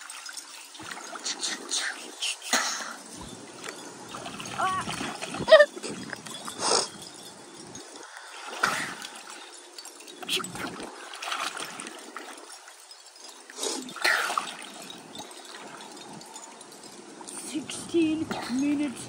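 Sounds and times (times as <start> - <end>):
swimmers splashing: 0.0 - 12.8
pool water sloshing and lapping: 0.0 - 19.0.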